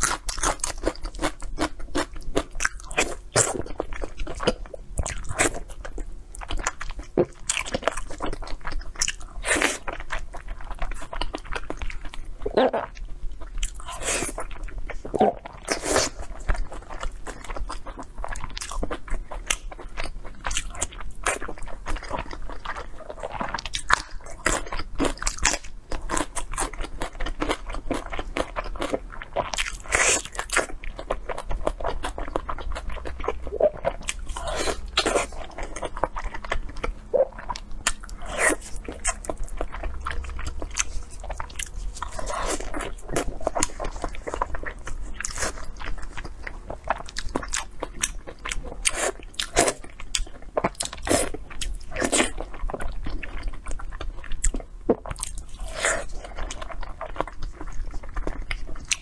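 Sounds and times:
biting and chewing: 0.0s - 59.0s.

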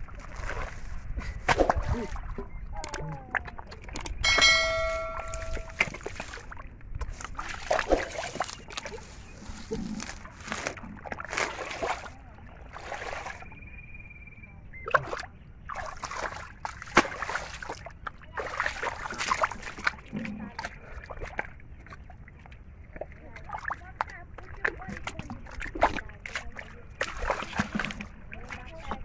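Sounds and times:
muddy water splashing: 0.0s - 13.8s, 14.7s - 29.0s.

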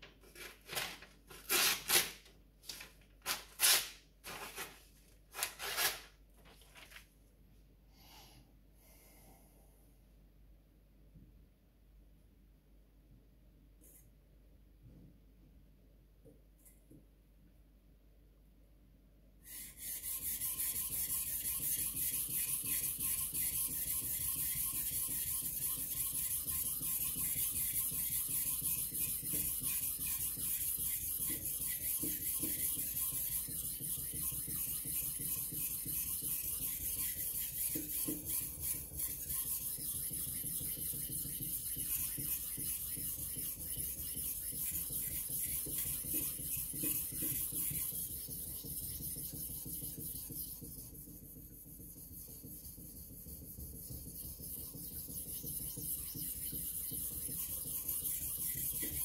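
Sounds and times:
knife scraping on whetstone: 19.5s - 49.4s.

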